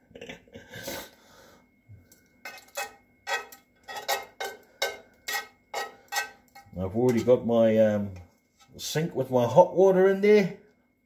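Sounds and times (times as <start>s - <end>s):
metal utensil scraping frying pan: 2.4s - 7.4s.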